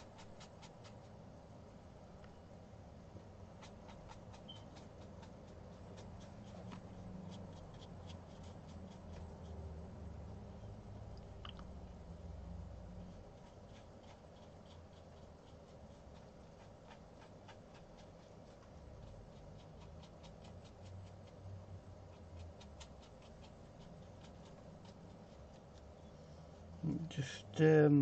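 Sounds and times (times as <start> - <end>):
paintbrush ticking on paper: 0.0 - 1.4, 3.2 - 9.8, 13.0 - 26.7
low steady hum: 0.0 - 28.0.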